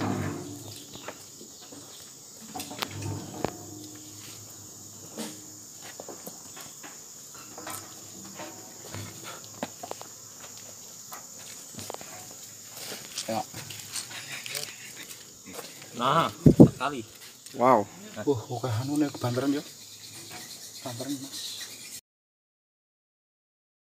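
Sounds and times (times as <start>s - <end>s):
high-pitched insect drone: 0.0s - 22.0s
wooden frames knocking: 2.5s - 9.2s.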